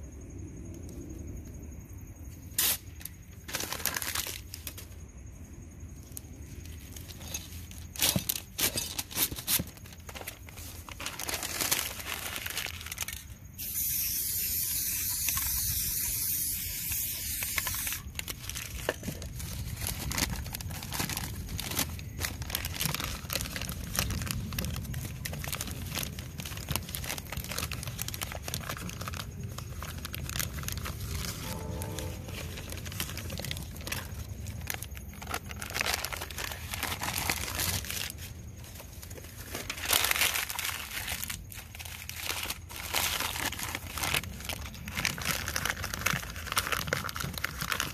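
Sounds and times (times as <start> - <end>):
newspaper crinkling: 2.6 - 5.0, 6.4 - 14.4, 15.1 - 47.9
spray paint can hissing: 13.6 - 18.0.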